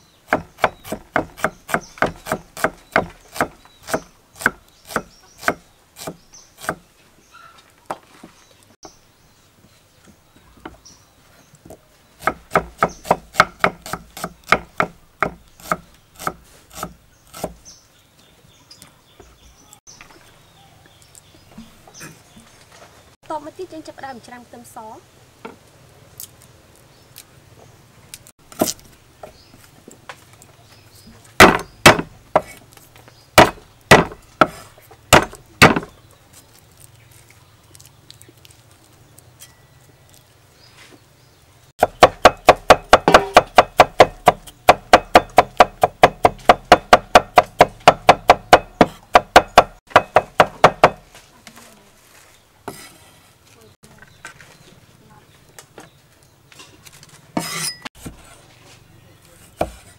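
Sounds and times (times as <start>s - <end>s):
knife chopping on wooden block: 0.3s - 6.8s, 12.2s - 17.6s, 31.4s - 32.6s, 33.4s - 35.9s, 41.8s - 51.1s, 59.5s - 59.9s.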